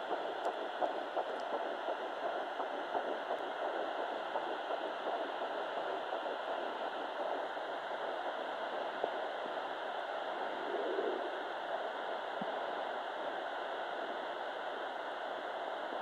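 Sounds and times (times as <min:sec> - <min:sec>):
fast whooshing heartbeat pulse: 0:00.0 - 0:11.5.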